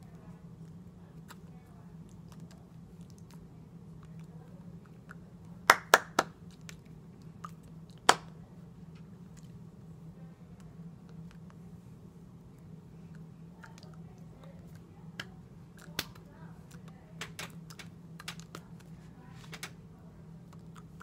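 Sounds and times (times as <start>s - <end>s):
steady low hum: 0.0s - 21.0s
hands slapping together: 8.1s - 8.3s.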